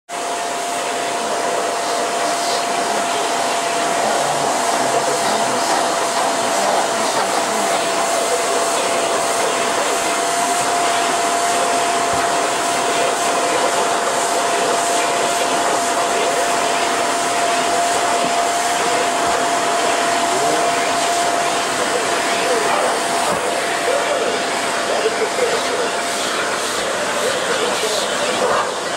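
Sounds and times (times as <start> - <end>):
vacuum cleaner running: 0.1 - 28.9.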